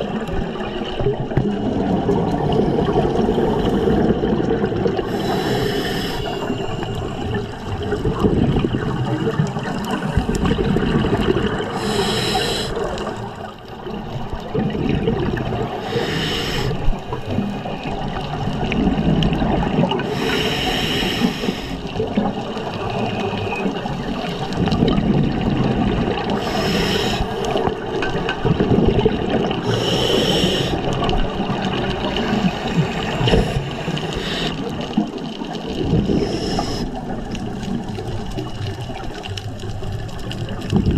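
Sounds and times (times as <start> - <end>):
scuba regulator exhalation bubbles: 0.0 - 40.9
low underwater rumble: 30.9 - 40.9.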